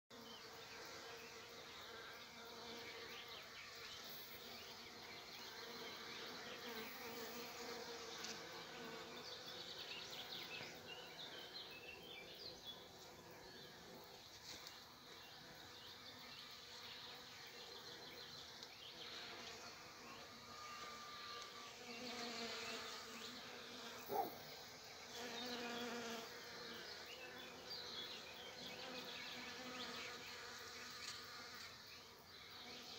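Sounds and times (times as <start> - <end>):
bees buzzing: 0.3 - 12.1, 15.2 - 32.9
bird chirps: 24.1 - 24.5.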